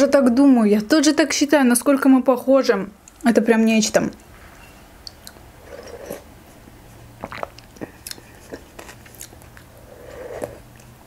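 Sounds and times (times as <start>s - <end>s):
wet mouth clicks and chewing: 5.0s - 5.5s, 7.2s - 9.7s
breathy sip from spoon: 9.7s - 10.7s.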